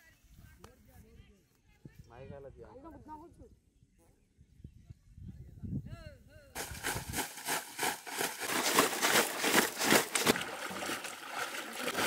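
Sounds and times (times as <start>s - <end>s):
water splashing in a crate: 6.6s - 12.0s.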